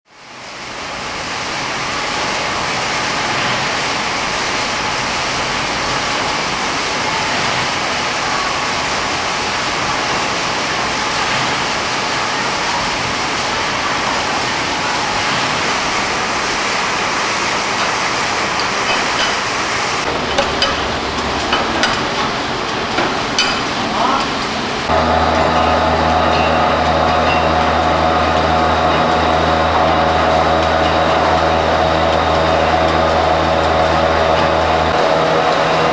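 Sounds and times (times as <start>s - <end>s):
workshop machinery rushing: 0.2s - 35.9s.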